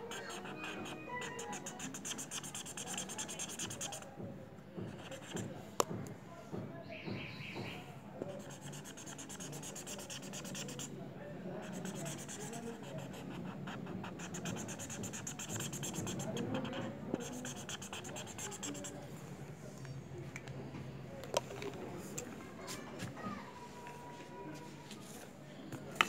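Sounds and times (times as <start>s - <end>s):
marker scratching on paper: 0.0s - 4.1s, 4.9s - 5.5s, 8.3s - 10.9s, 11.6s - 19.0s.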